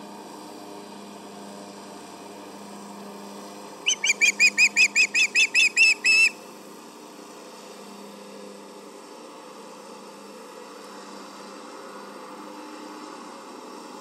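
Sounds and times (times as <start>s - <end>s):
bird whistled chirps: 3.9s - 6.4s.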